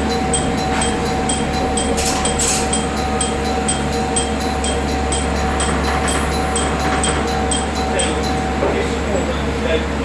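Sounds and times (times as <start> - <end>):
diesel engine idling: 0.0 - 10.0
faint high ticking: 0.3 - 8.2.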